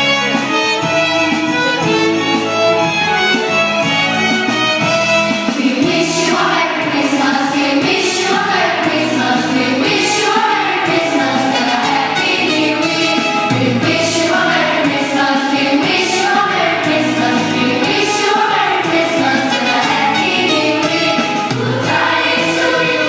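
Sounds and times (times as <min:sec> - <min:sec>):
choir singing: 0:04.8 - 0:23.0
instrumental held notes: 0:08.6 - 0:23.0.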